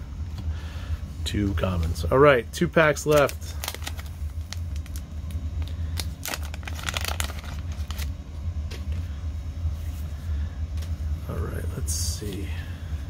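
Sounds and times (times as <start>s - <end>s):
steady low hum: 0.0s - 13.0s
paper wrapper tearing and crinkling: 3.1s - 5.0s, 5.6s - 8.1s.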